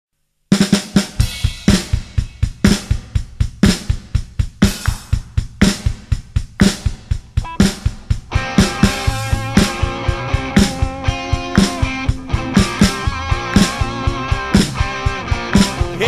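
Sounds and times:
rock drum beat: 0.5s - 16.0s
cymbal and snare hits: 0.6s - 13.9s
bass drum pulse: 7.2s - 15.0s.

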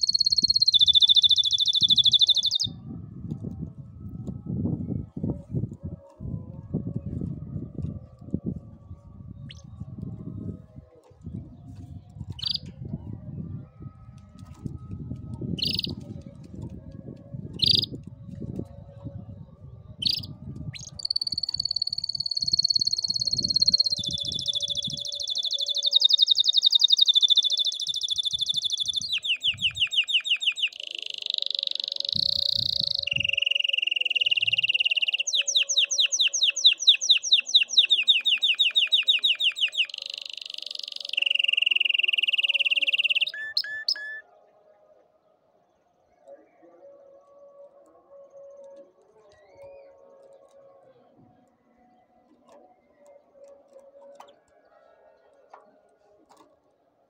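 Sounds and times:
canary singing trills: 0.0s - 2.8s, 12.3s - 12.7s, 15.6s - 16.2s, 17.6s - 18.0s, 20.0s - 44.2s.

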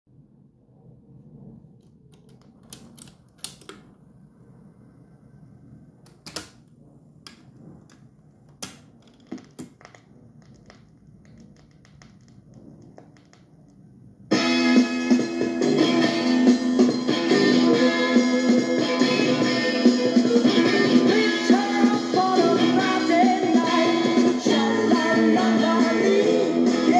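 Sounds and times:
song through small speaker: 14.3s - 26.9s.

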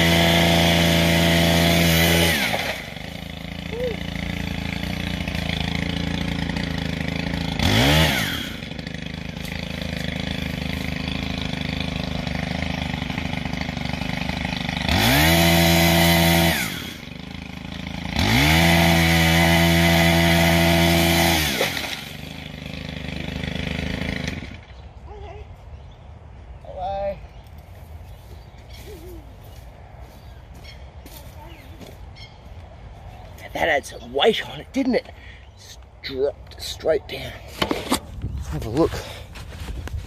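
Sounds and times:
pole saw engine idling and revving: 0.0s - 25.1s, 32.8s - 40.0s.

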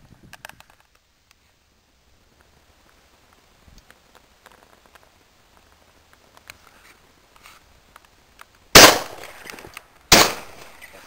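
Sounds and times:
shotgun shots: 8.7s - 9.5s, 10.1s - 11.0s.

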